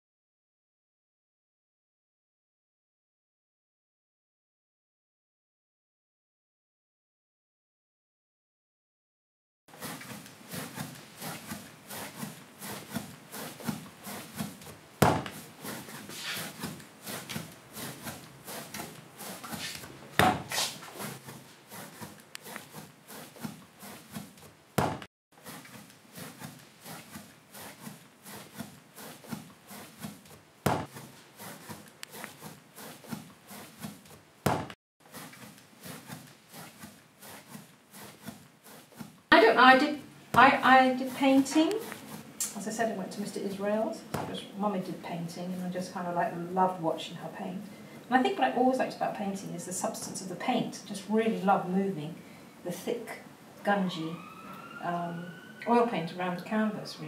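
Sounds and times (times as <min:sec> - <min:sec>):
tool scraping strokes: 0:09.7 - 0:46.8
sharp knock: 0:15.0 - 0:15.4, 0:24.8 - 0:25.1.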